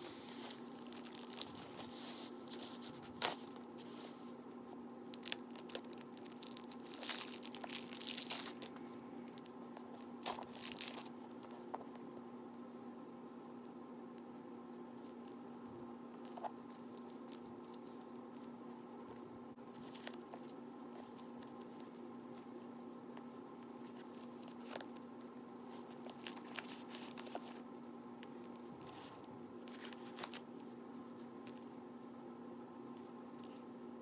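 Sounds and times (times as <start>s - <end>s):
plastic wrap crinkling: 0.0s - 4.4s, 5.0s - 11.6s, 19.7s - 27.6s, 28.2s - 31.3s
tape being peeled: 0.0s - 11.6s, 14.6s - 18.6s, 19.7s - 31.7s
steady low hum: 0.0s - 34.0s.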